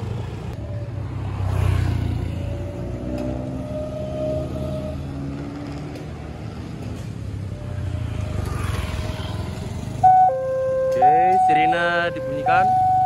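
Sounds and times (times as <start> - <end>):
crossing warning siren: 0.6 - 5.5, 10.0 - 13.0.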